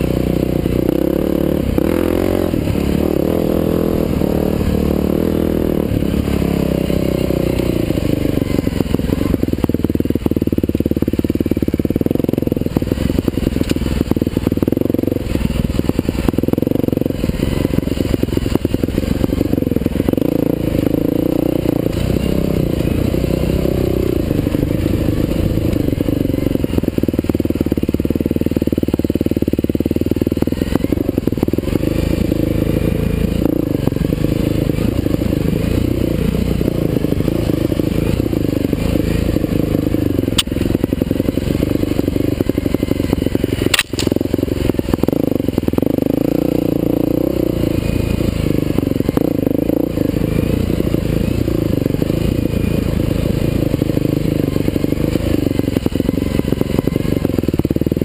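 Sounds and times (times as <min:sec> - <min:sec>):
dirt bike engine revving: 0:00.0 - 0:58.0
bike rattling and knocking: 0:33.4 - 0:49.9.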